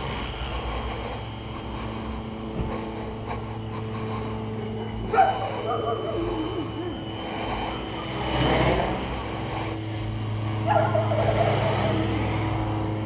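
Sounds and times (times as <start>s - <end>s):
rc helicopter motor humming: 0.0s - 13.0s
short whining calls: 3.9s - 9.1s, 10.1s - 12.6s.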